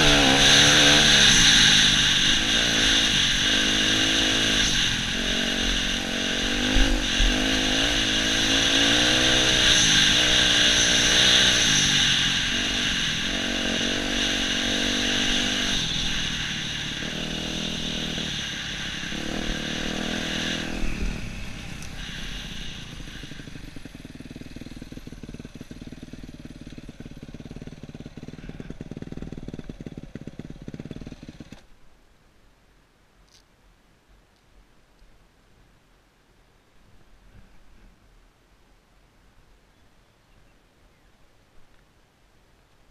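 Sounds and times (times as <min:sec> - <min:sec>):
dirt bike engine revving: 0:00.0 - 0:31.6.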